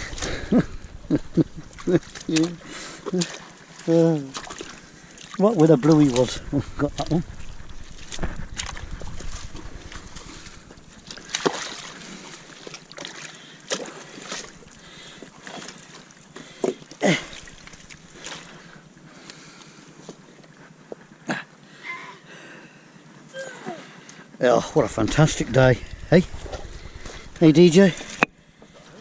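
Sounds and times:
water sloshing: 0.0 - 19.8
stones knocking: 7.1 - 10.6.

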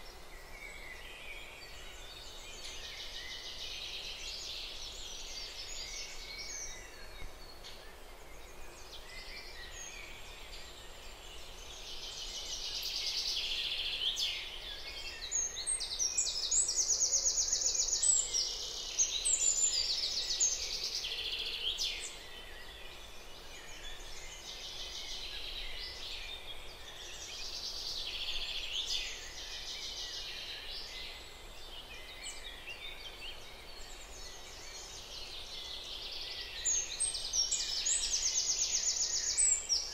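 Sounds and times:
birds singing and chirping: 0.0 - 39.9.

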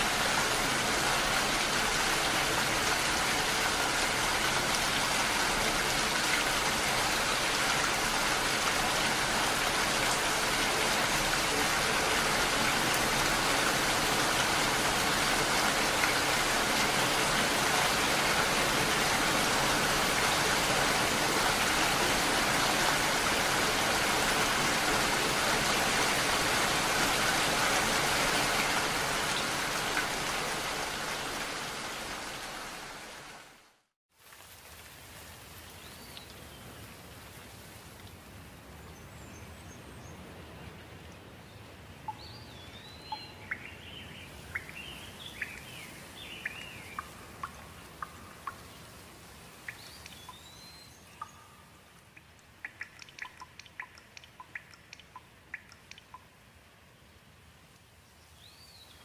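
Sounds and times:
steady rain hiss: 0.0 - 59.0.

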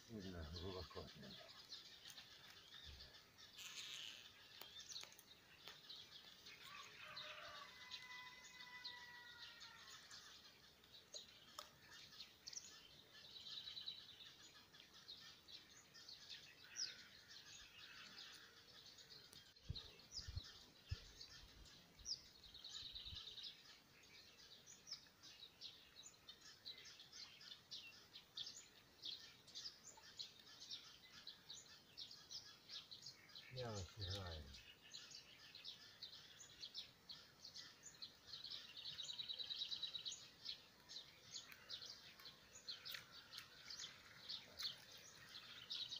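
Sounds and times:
small birds chirping: 0.0 - 45.9.

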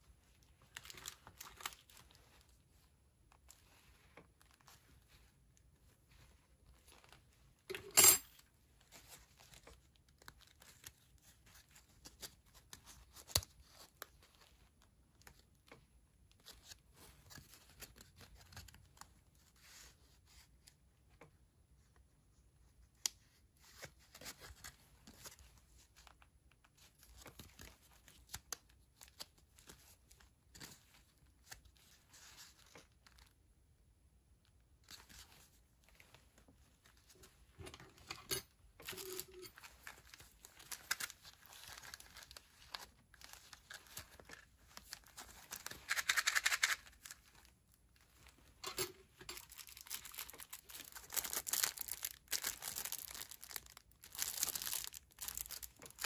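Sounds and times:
cardboard and paper rustling: 38.8 - 56.0.

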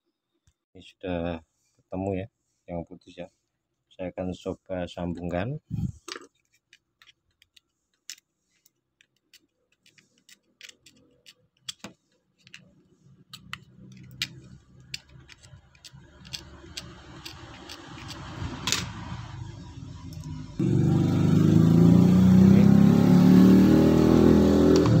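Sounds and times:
knife blade clicking and scraping wire: 6.4 - 19.0.

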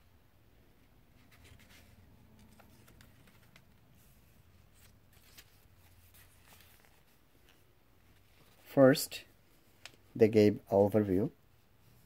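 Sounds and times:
paper pages turning: 1.2 - 8.7.

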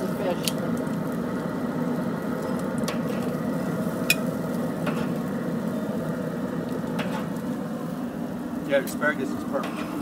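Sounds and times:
food sizzling on a grill: 0.0 - 10.0.

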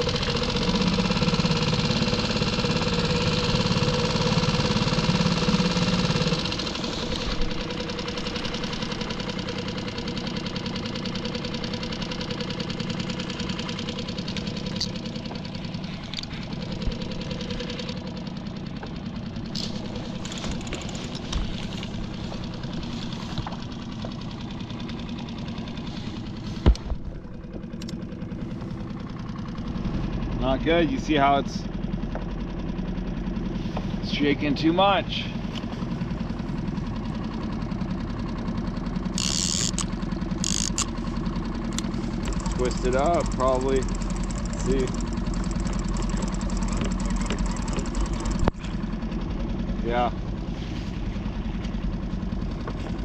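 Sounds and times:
outboard motor puttering: 0.0 - 53.0.

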